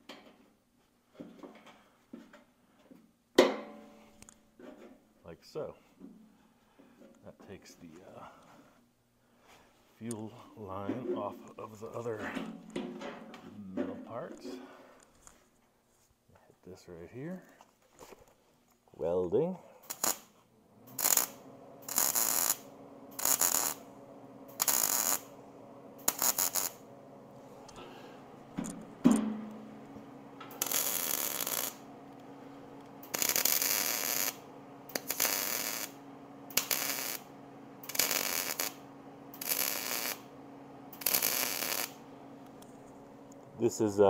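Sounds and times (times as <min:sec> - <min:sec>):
low steady hum: 0:03.5 - 0:44.0
welder arc crackling: 0:19.8 - 0:20.3, 0:20.9 - 0:43.7.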